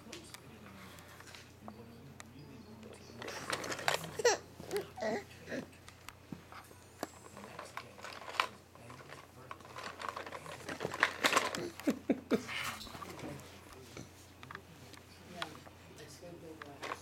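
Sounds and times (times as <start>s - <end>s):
handling clicks and rustles: 2.9s - 4.9s, 7.0s - 12.0s, 16.5s - 17.0s.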